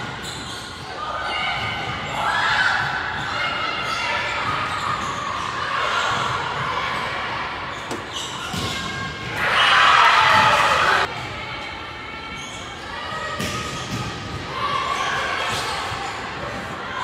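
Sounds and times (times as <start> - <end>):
team shouting and cheering: 8.6 - 17.0.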